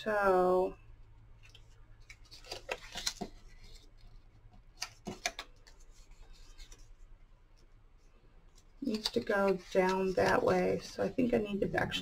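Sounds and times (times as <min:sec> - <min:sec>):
cardstock crinkling and tapping: 0:01.4 - 0:06.9, 0:08.6 - 0:10.8.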